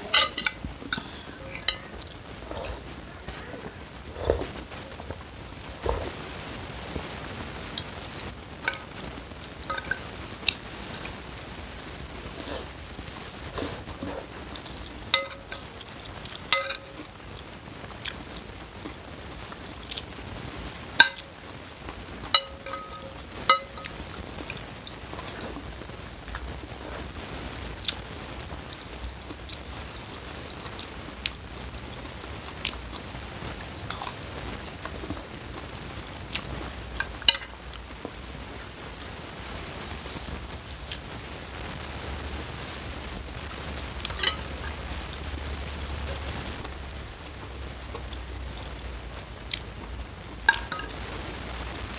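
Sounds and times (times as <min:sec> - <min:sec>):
spoon clinking against bowl: 0:00.1 - 0:02.0, 0:15.2 - 0:15.6, 0:16.5 - 0:17.1, 0:22.3 - 0:24.0, 0:50.5 - 0:51.0.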